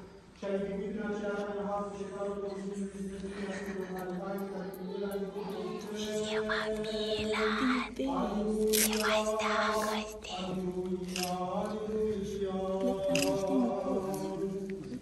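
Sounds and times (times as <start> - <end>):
unaccompanied liturgical chant: 0.0 - 15.0.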